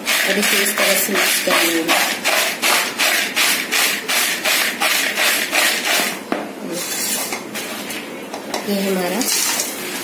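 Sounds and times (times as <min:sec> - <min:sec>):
dry snack stirred in plastic bowl: 0:00.0 - 0:06.2.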